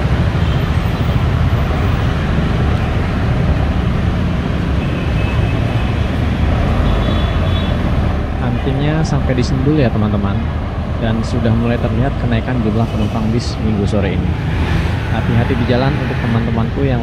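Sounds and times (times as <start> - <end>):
bus diesel engine rumbling: 0.0 - 17.0.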